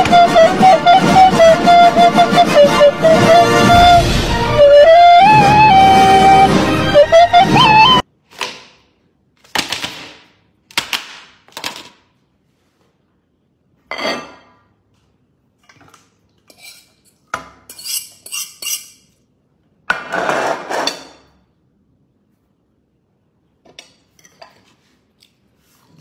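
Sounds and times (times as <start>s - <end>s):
dishes clattering and clinking: 13.8s - 14.7s, 15.6s - 19.2s, 19.9s - 21.5s, 23.6s - 24.8s.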